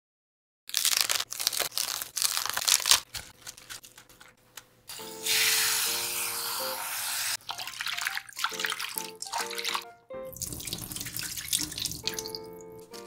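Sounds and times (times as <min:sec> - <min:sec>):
cabbage leaves torn by hand: 0:00.7 - 0:07.4
tap spraying water into steel bowl: 0:05.0 - 0:07.4.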